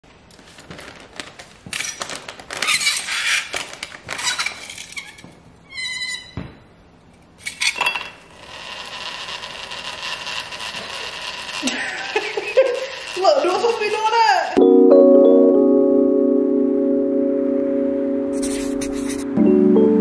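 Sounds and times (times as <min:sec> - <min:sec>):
plastic bag crinkling: 0:00.4 - 0:04.8
dry ice squealing against tongs: 0:04.1 - 0:06.4.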